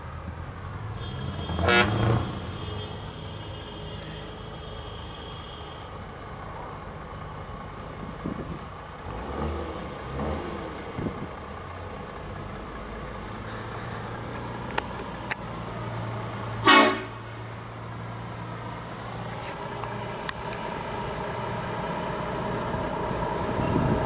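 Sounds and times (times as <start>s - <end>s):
diesel truck engine running: 0.0s - 24.0s
truck horn blast: 0.9s - 5.8s, 16.6s - 17.3s.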